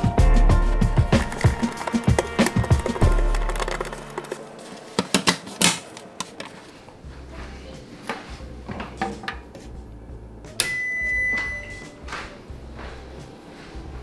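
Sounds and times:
handling clicks and knocks: 1.1 - 6.6.

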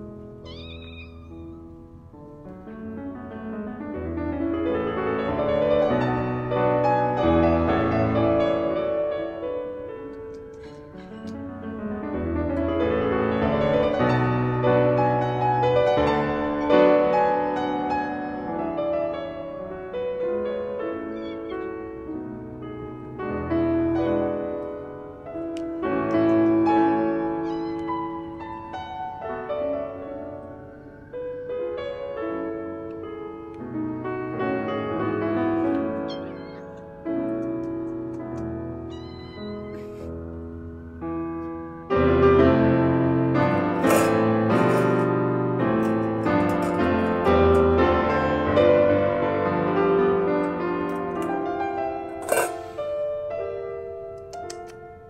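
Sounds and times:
solo piano music: 0.0 - 55.0
cat meowing faintly: 0.4 - 1.6, 20.9 - 22.0, 27.1 - 28.4, 35.6 - 36.9, 38.8 - 40.2.

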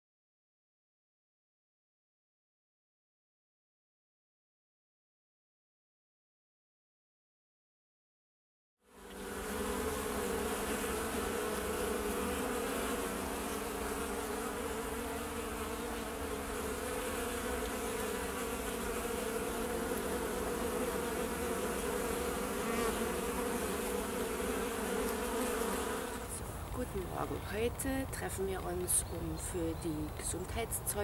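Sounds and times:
honeybees humming: 8.9 - 31.0.

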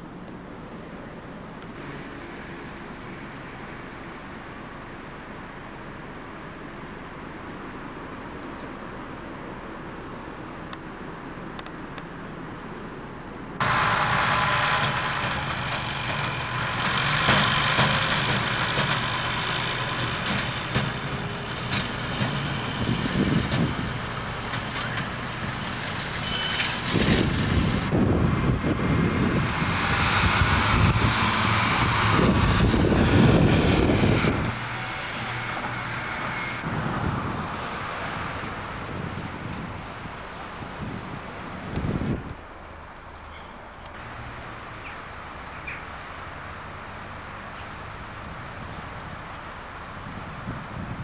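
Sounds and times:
construction vehicle diesel engines: 0.0 - 51.0
tractor pulling a trailer: 13.3 - 51.0.

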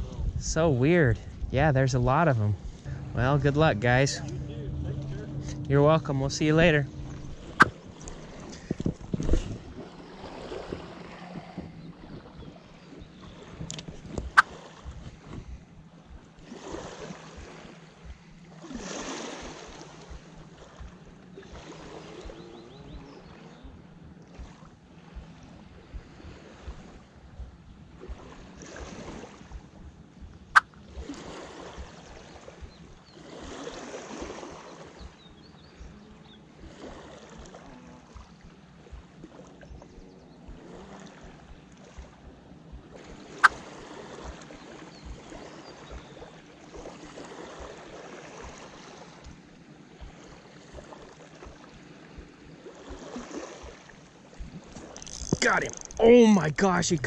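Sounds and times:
wind gusting over microphone: 0.0 - 22.9
small waves lapping: 0.0 - 57.0
sharp click: 55.0 - 56.0.

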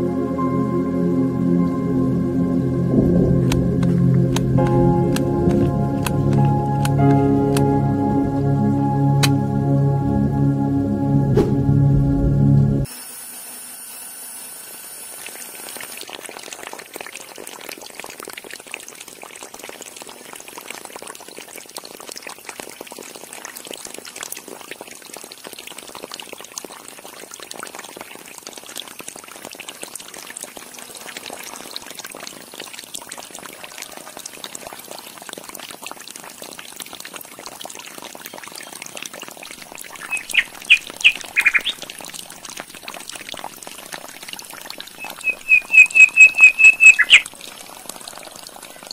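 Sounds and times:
water pouring into trough: 13.9 - 48.9
short loud high calls: 40.0 - 41.8, 45.0 - 47.2.

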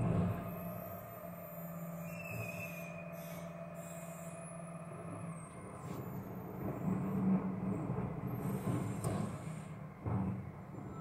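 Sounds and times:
distant diesel lorry engine: 0.0 - 11.0.

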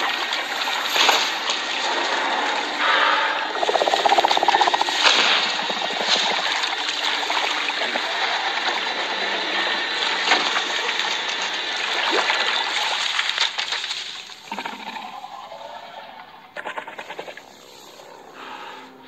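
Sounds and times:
water sloshing and trickling: 0.0 - 14.7
water splashes: 0.0 - 14.9.

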